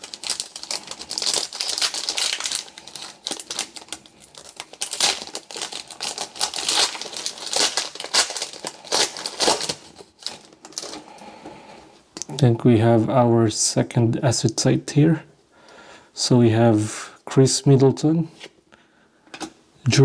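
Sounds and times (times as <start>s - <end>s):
wrapper tearing and crinkling: 0.0s - 11.0s.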